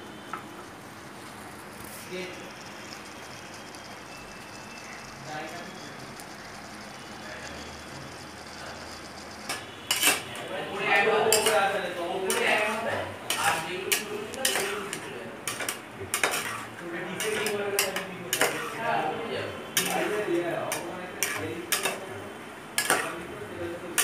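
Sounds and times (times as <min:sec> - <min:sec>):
metal spatula scraping a pot: 0:08.4 - 0:10.4, 0:11.2 - 0:18.8, 0:19.8 - 0:22.0, 0:22.8 - 0:23.2.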